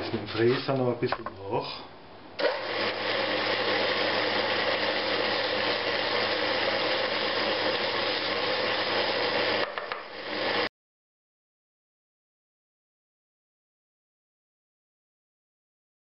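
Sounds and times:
rotary tool grinding wood: 0:02.4 - 0:10.7.

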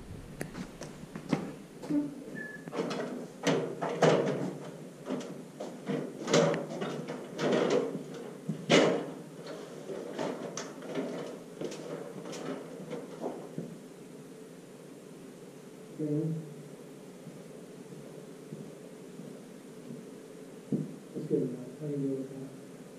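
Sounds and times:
footsteps: 0:00.0 - 0:02.7.

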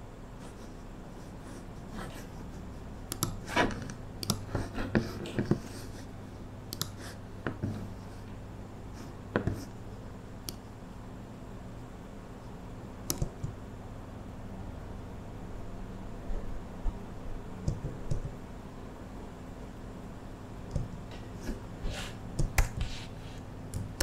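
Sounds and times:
steady low hum: 0:00.0 - 0:24.0
mouse and keyboard clicks: 0:03.1 - 0:04.6, 0:06.7 - 0:07.0, 0:13.1 - 0:13.6.

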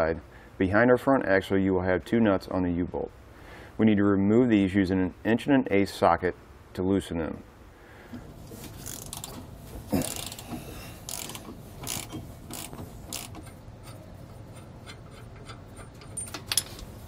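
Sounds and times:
socket ratchet rasping: 0:08.7 - 0:16.9
ratchet ticks: 0:08.9 - 0:09.3, 0:10.1 - 0:16.0.

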